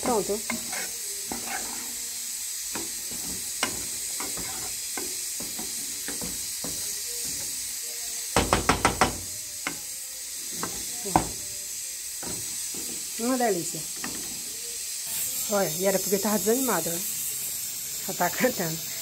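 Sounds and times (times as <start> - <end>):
hot pan hissing: 0.0 - 19.0
wooden spoon knocking pot: 8.4 - 9.2.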